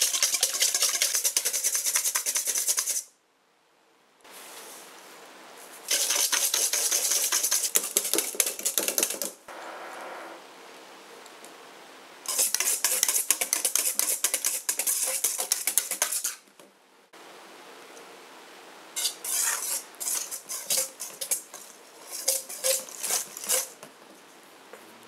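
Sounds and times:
whisk beating in metal bowl: 0:00.0 - 0:03.0, 0:05.9 - 0:09.1, 0:12.3 - 0:16.4, 0:19.2 - 0:23.7.

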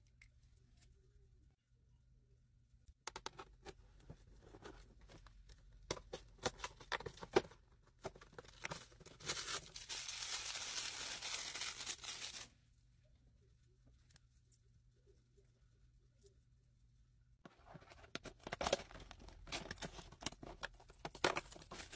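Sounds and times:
cardboard packaging crinkling: 0:08.3 - 0:12.5.

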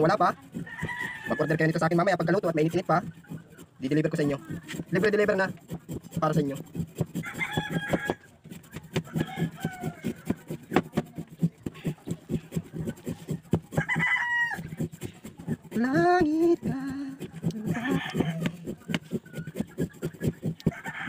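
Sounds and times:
knife scraping sugar block: 0:00.0 - 0:21.0
rooster crowing: 0:00.5 - 0:02.0, 0:07.2 - 0:08.3, 0:08.9 - 0:10.4, 0:13.7 - 0:14.9, 0:17.4 - 0:18.7, 0:20.6 - 0:21.0.

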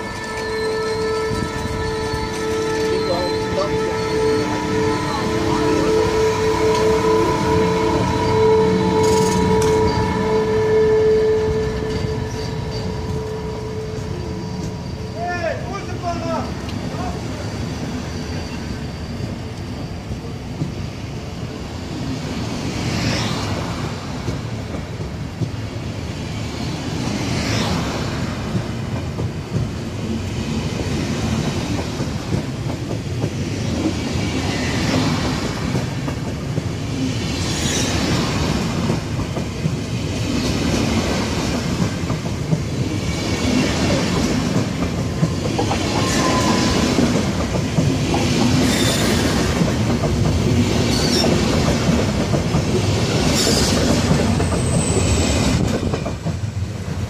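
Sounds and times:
train coaches rumbling past: 0:00.0 - 0:57.0
wheel clatter and squeal: 0:07.7 - 0:20.9, 0:37.2 - 0:39.0, 0:41.9 - 0:56.3.

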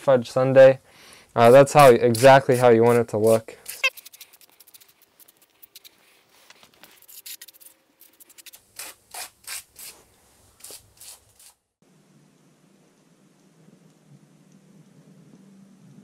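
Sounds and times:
faint steady hum: 0:11.8 - 0:16.0.

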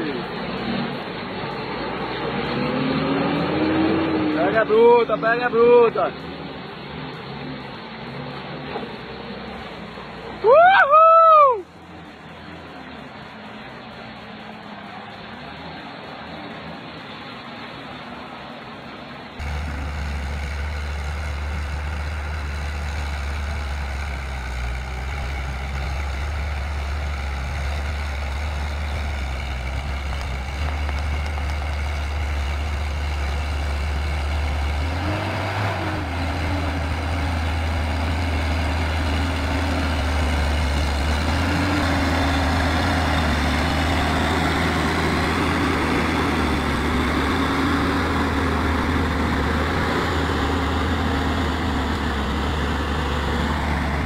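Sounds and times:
diesel engine under heavy load: 0:00.0 - 0:54.0.

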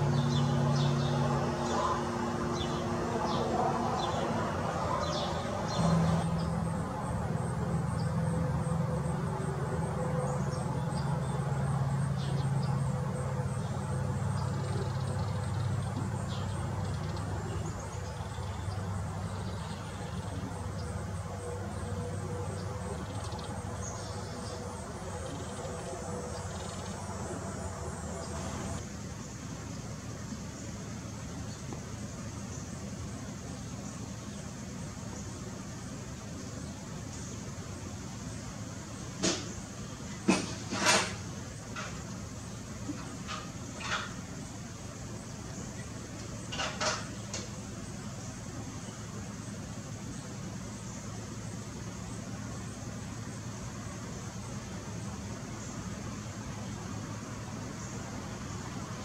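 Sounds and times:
small birds chirping: 0:00.0 - 0:06.8, 0:10.2 - 0:40.3
steady low hum: 0:00.0 - 0:59.0.

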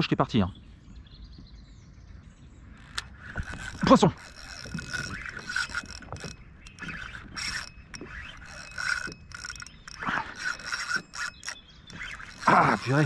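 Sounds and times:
fishing reel clicking: 0:02.7 - 0:13.0
knocks and scrapes against hull: 0:02.8 - 0:13.0.

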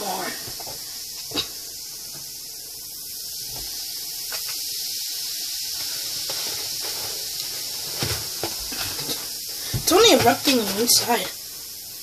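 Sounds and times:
fizzing hiss of foaming reaction: 0:00.0 - 0:12.0.

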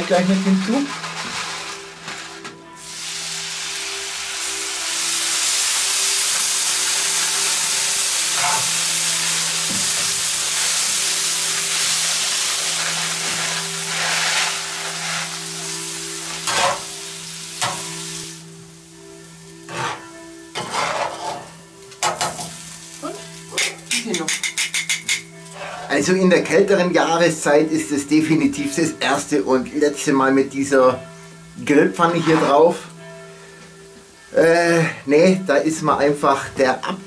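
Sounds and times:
liquid sizzling on hot pan: 0:00.0 - 0:25.9
metal spatula scraping pan: 0:08.3 - 0:08.8, 0:12.7 - 0:15.4, 0:16.2 - 0:16.9, 0:19.6 - 0:22.5, 0:23.6 - 0:26.1, 0:32.0 - 0:32.8.

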